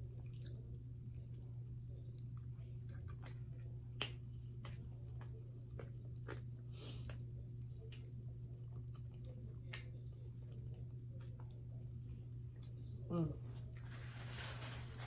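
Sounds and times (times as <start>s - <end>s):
person chewing food: 0.0s - 13.0s
steady low hum: 0.0s - 15.0s.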